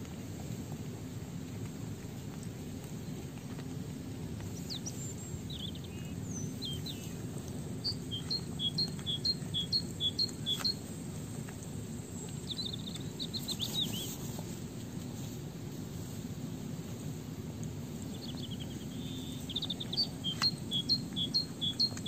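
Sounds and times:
low background rumble: 0.0s - 22.0s
small birds chirping: 4.4s - 15.4s, 17.9s - 22.0s.

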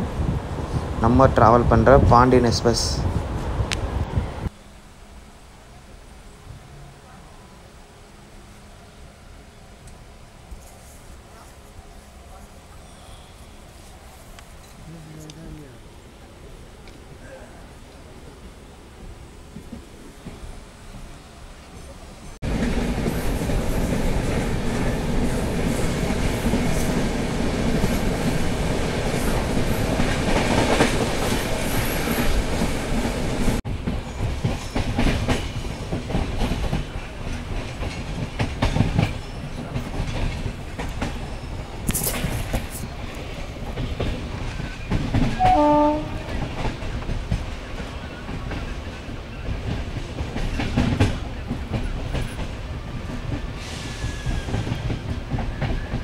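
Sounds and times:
rush of wind and running gear: 0.0s - 4.5s
train wheels clacking over rail joints: 22.5s - 56.0s
train horn blast: 45.4s - 46.4s.

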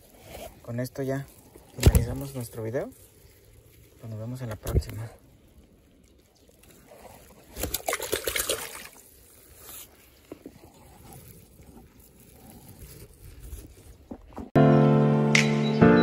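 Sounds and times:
water sloshing and dripping: 1.3s - 11.7s
water splashing: 1.3s - 12.4s.

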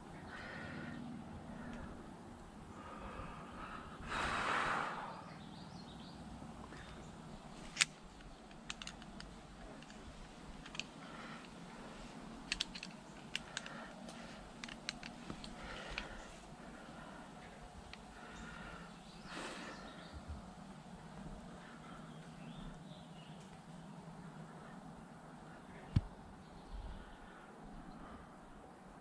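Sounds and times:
climbing gear clicking and knocking: 7.7s - 11.6s, 12.4s - 16.3s.

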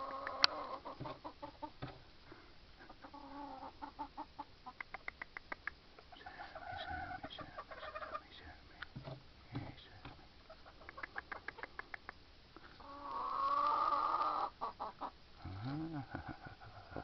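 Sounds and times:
hens clucking: 0.0s - 2.1s, 2.8s - 9.7s, 10.4s - 17.0s
hen drawn-out call: 6.2s - 8.2s, 12.8s - 16.1s.

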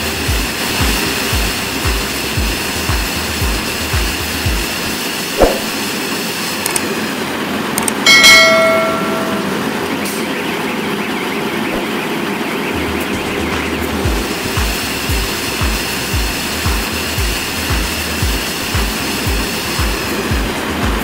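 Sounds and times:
baler machine running: 0.0s - 21.0s
loud metallic clang: 8.1s - 10.4s.

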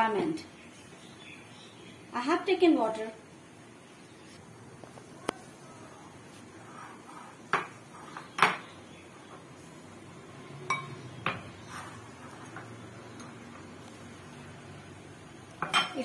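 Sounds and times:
glass clinking against glass bowl: 10.7s - 11.4s, 15.6s - 16.0s.

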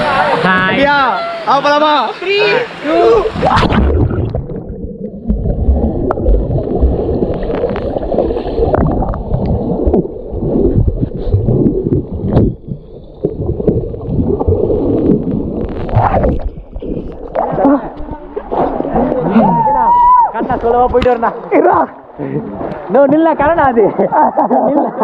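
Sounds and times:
low rumbles: 3.2s - 21.1s
muffled water gurgling and sloshing: 3.2s - 24.0s.

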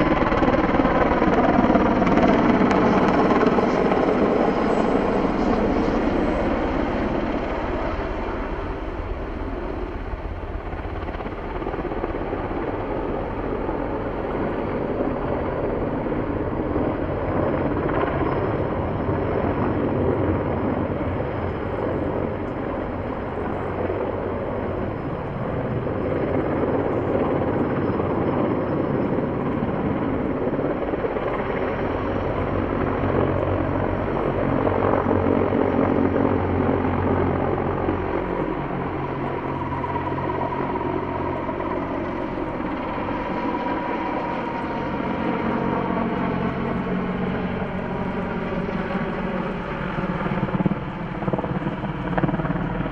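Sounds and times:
helicopter rotor and engine noise: 0.0s - 52.9s.

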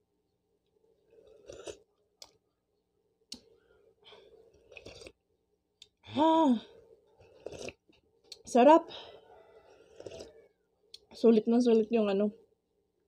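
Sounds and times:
eating and chewing noises: 0.6s - 2.6s, 3.2s - 5.2s, 6.6s - 8.5s, 9.1s - 11.2s.

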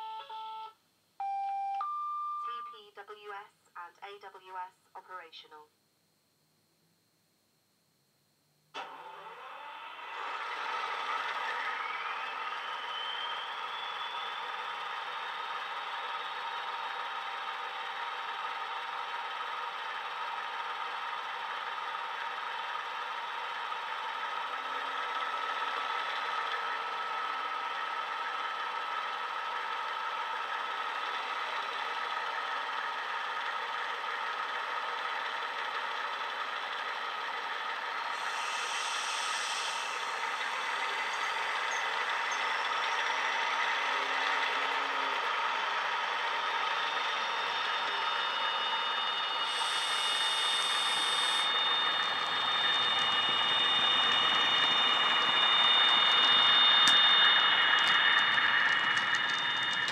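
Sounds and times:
steady whine: 5.8s - 59.9s
model locomotive diesel engine idling: 10.2s - 59.9s
clicks: 54.6s - 59.9s.

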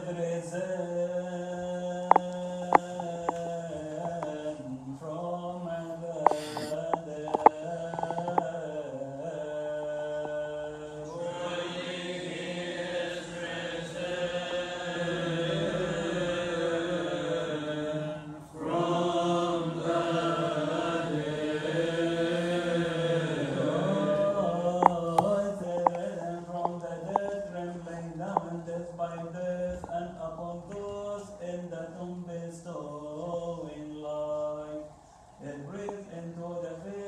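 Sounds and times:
men chanting a hymn: 0.0s - 37.0s
sharp clicks: 2.1s - 4.4s, 6.2s - 8.6s, 24.6s - 27.4s.

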